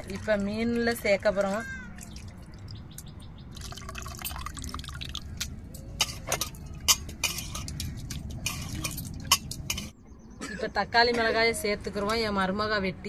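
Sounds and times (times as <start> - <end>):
sharp drips and taps: 0.0 - 9.9
water pouring and splashing: 0.0 - 9.9.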